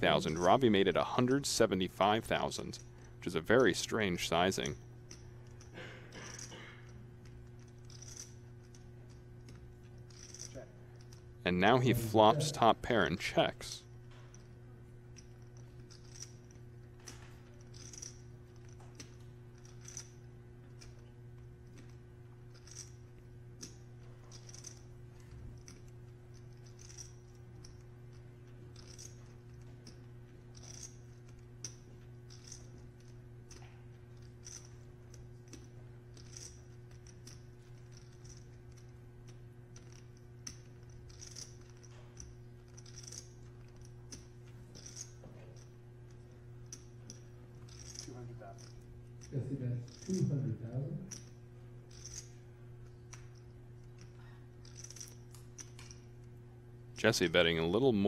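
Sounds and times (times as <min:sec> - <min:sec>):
steady low hum: 0:00.0 - 0:58.0
poker chips clicking: 0:15.2 - 0:20.1, 0:24.4 - 0:24.8, 0:25.6 - 0:27.8, 0:28.8 - 0:34.7, 0:35.5 - 0:38.9, 0:39.8 - 0:45.1, 0:47.1 - 0:49.3, 0:53.9 - 0:56.0.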